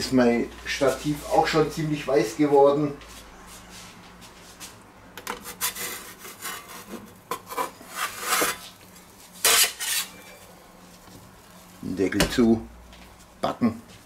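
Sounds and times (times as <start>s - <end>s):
metal pizza peel scraping stone: 5.4s - 8.7s, 9.4s - 10.3s.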